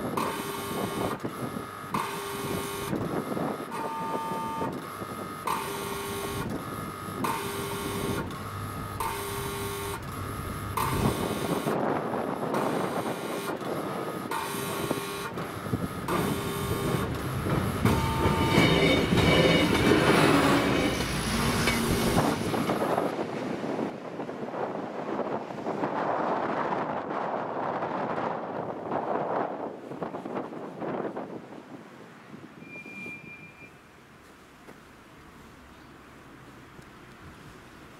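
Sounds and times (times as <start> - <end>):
two-tone electronic warning horn: 0.1 - 21.0
wind on microphone: 6.4 - 32.6.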